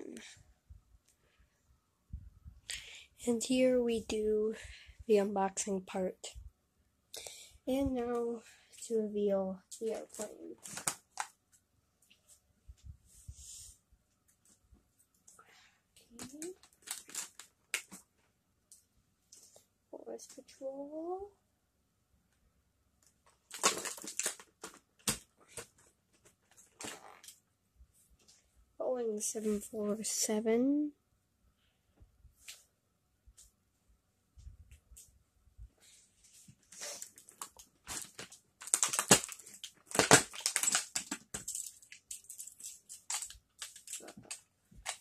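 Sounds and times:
plastic tray crackling and snapping: 10.6 - 11.4, 16.2 - 18.0, 23.3 - 27.4, 37.1 - 45.0.

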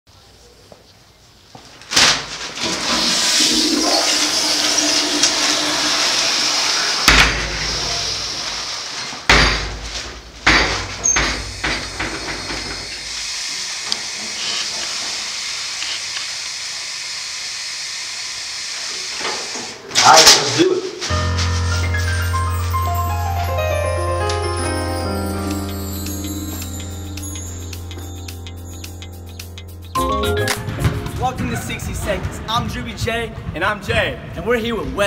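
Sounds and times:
rushing water hiss: 2.9 - 9.1, 11.3 - 19.8
sharp bangs: 5.1 - 8.4.

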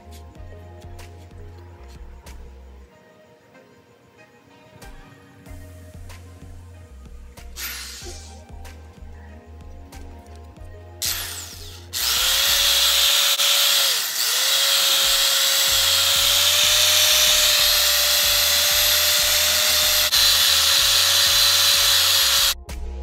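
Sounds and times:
polishing pad whirring: 11.0 - 22.6
electric polisher motor whine: 11.1 - 22.6.

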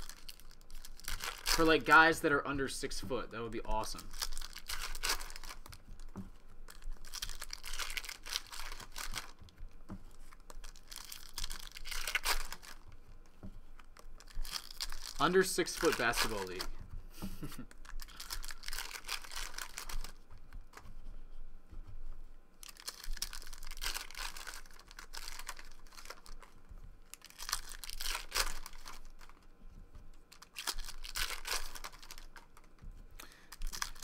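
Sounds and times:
foil wrappers tearing and crinkling: 0.0 - 16.8, 17.4 - 20.9, 22.6 - 29.5, 30.1 - 34.0.

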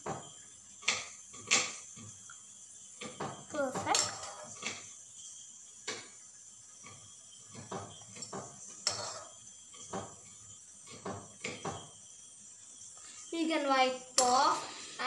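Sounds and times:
spoon clinking and scraping a pot: 3.8 - 4.9, 6.8 - 11.9.

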